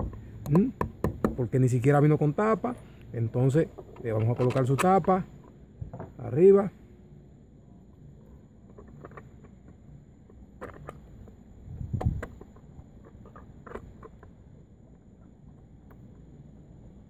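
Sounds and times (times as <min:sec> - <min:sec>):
dull knock: 0:00.8 - 0:01.4
screwdriver clicks and scrapes: 0:12.0 - 0:14.3.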